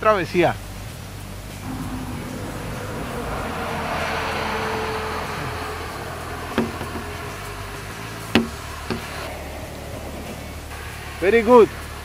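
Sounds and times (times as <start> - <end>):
rushing noise: 1.5 - 11.9.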